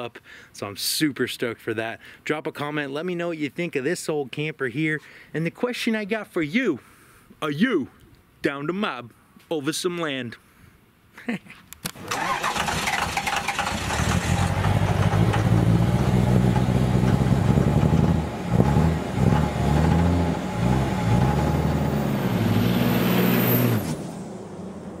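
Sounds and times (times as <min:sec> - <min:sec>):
diesel pickup engine revving: 0:12.0 - 0:25.0.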